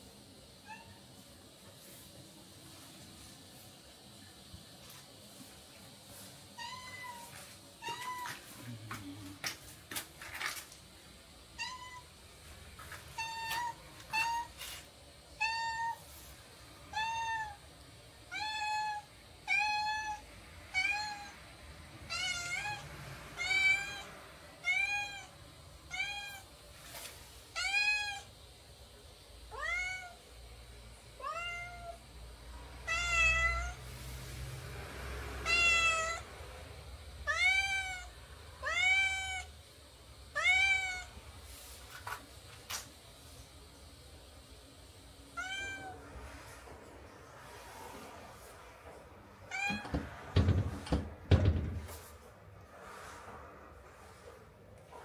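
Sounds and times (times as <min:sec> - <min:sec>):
cat meowing: 0:06.6 - 0:08.4, 0:11.6 - 0:12.1, 0:15.4 - 0:16.0, 0:16.9 - 0:17.6, 0:18.3 - 0:21.4, 0:22.1 - 0:22.8, 0:29.5 - 0:30.2, 0:31.2 - 0:32.0, 0:32.8 - 0:33.8, 0:35.4 - 0:36.3, 0:37.2 - 0:39.5, 0:40.3 - 0:41.1, 0:45.4 - 0:46.1, 0:49.5 - 0:50.0.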